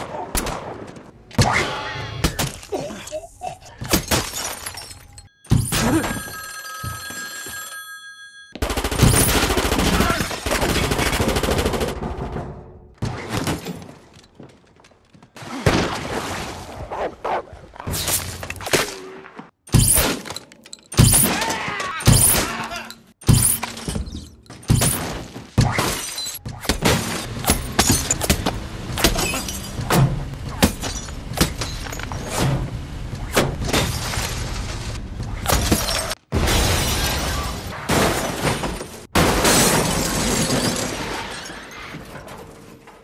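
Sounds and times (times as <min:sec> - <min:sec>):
steady ringing tone: 0:05.2 - 0:08.6
gunshots and impacts: 0:08.6 - 0:14.0, 0:23.2 - 0:41.2.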